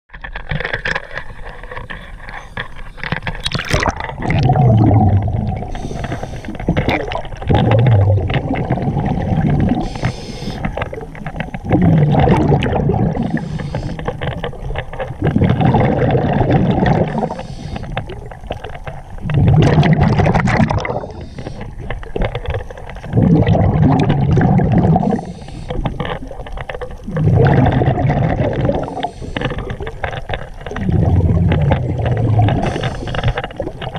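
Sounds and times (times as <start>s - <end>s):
exhaled air bubbling underwater: 0.6s - 33.9s
regulator inhalation hiss: 5.7s - 6.6s, 9.8s - 10.7s, 13.3s - 14.1s, 17.2s - 17.9s, 32.6s - 33.4s.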